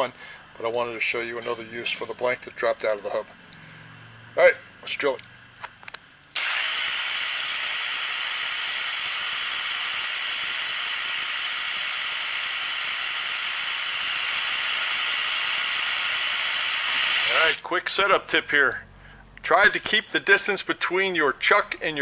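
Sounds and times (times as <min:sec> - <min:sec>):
milling machine spindle whirring: 0:06.4 - 0:17.6.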